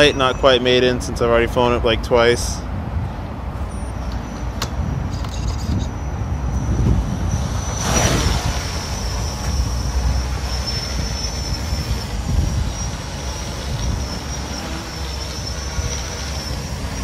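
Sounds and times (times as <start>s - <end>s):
drone motors whirring: 3.6s - 17.0s.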